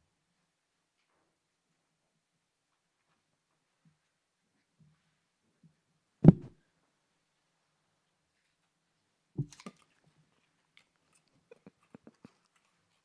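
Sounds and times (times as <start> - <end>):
dull thump: 6.2 - 6.6.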